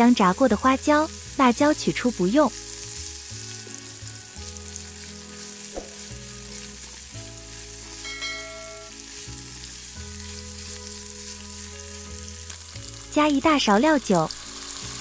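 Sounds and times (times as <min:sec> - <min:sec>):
tofu sizzling in hot oil: 0:00.0 - 0:15.0
spatula stirring in wok: 0:02.5 - 0:12.6.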